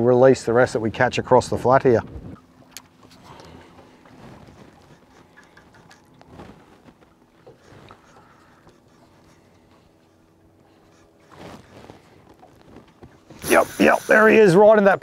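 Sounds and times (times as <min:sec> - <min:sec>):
faint steady hum: 0:00.2 - 0:15.0.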